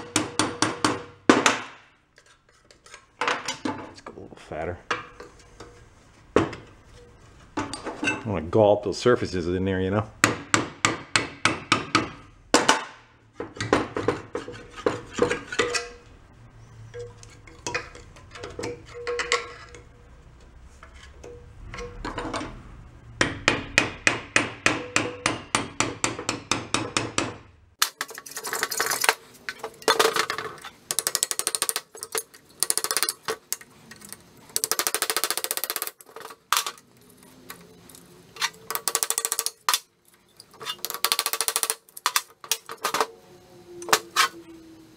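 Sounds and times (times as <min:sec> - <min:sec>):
small hammer tapping metal: 0:23.2 - 0:27.4.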